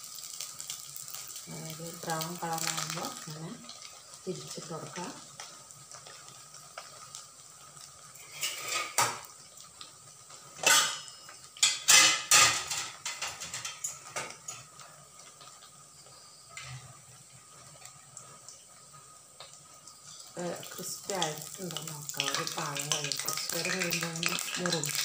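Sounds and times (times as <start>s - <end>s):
faint sizzle of deep-frying: 0.0s - 25.0s
metal utensils clattering on wok: 8.2s - 9.2s, 10.6s - 14.8s, 22.2s - 25.0s.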